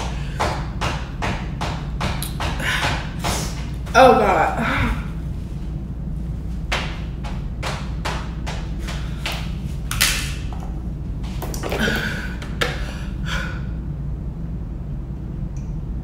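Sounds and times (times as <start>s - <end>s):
person breathing hard: 0.0s - 0.8s, 2.2s - 3.7s, 8.7s - 9.7s, 11.8s - 13.9s
steady low hum: 0.0s - 16.0s.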